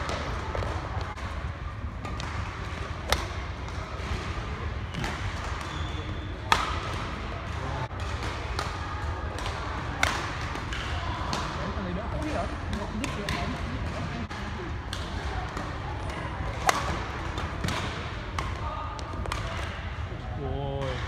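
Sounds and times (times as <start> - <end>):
hum of a large hall: 0.0 - 21.0
murmur of voices: 0.0 - 21.0
racket hitting shuttlecock: 2.0 - 4.1, 6.5 - 7.1, 7.9 - 11.5, 16.5 - 18.6.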